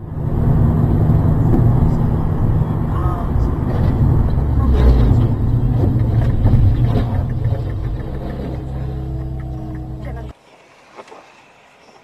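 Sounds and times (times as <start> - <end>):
car engine hum: 0.0 - 11.8
road noise rumble: 0.0 - 12.0.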